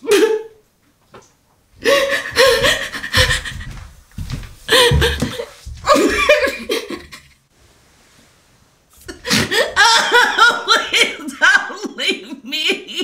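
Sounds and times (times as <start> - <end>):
woman sobbing: 1.8 - 3.6, 9.1 - 13.0.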